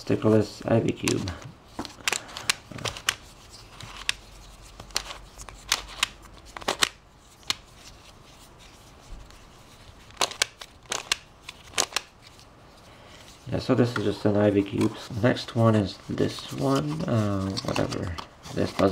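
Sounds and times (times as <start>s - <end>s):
puzzle cube pieces clicking: 10.1s - 12.1s.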